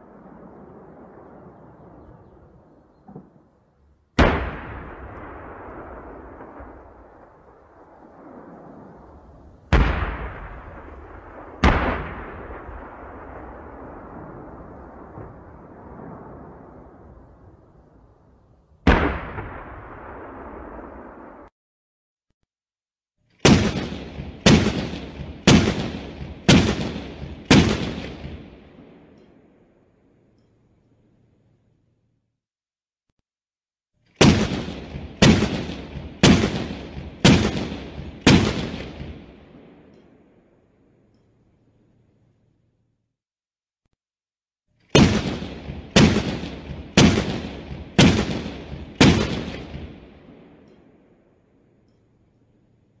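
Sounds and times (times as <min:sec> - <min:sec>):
tank cannon shots: 0:04.2 - 0:07.0, 0:09.7 - 0:14.4, 0:18.8 - 0:21.0, 0:23.4 - 0:29.2, 0:34.2 - 0:40.1, 0:44.9 - 0:50.8.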